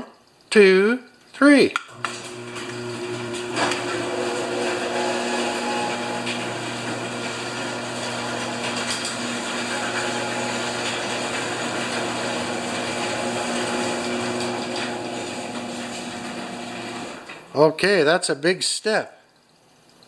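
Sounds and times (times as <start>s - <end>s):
garage door openers humming: 1.9s - 17.6s.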